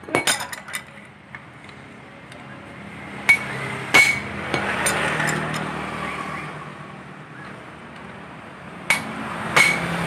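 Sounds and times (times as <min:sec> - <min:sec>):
metal tools clinking: 0:00.1 - 0:01.0, 0:03.3 - 0:05.7
ringing metal knocks: 0:08.9 - 0:09.9.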